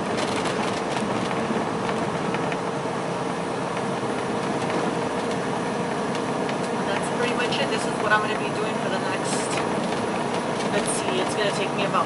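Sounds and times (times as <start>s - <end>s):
constant hum: 0.0s - 12.0s
truck engine and road noise: 0.0s - 12.0s.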